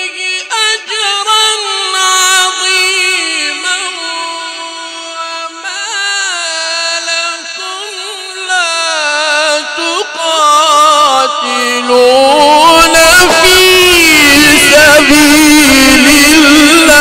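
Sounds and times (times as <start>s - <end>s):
person reciting melodically: 0.0s - 17.0s.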